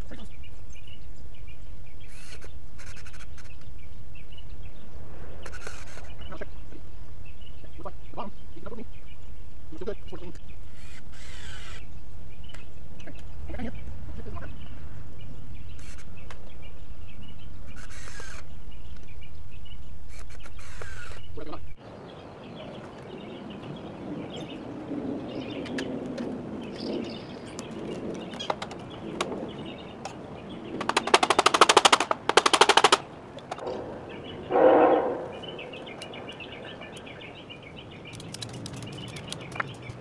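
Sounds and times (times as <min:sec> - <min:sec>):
steady low rumble: 0:03.8 - 0:10.7, 0:11.9 - 0:15.8, 0:33.0 - 0:38.1.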